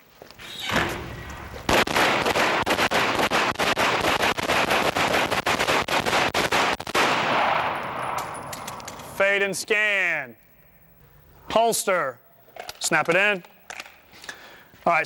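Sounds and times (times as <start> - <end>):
handguns firing indoors: 0.8 - 9.0.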